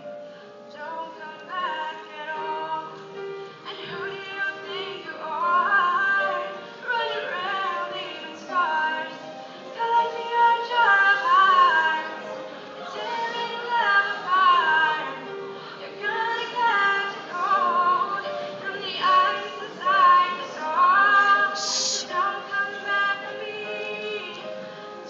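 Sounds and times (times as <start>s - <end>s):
person singing into a microphone: 15.8s - 25.0s.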